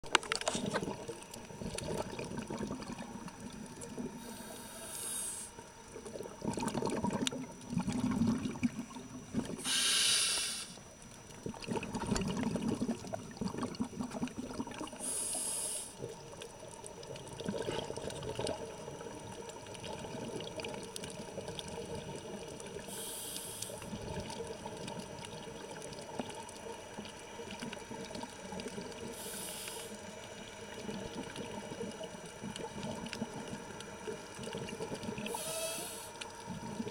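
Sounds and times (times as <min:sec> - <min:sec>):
exhaled bubbles rumbling: 0:00.0 - 0:04.7, 0:05.5 - 0:09.8, 0:10.9 - 0:15.2, 0:16.0 - 0:23.0, 0:23.7 - 0:29.4, 0:30.0 - 0:36.9
regulator breathing hiss: 0:04.2 - 0:05.6, 0:09.6 - 0:10.8, 0:15.0 - 0:16.0, 0:22.9 - 0:23.9, 0:29.1 - 0:30.0, 0:35.3 - 0:36.2.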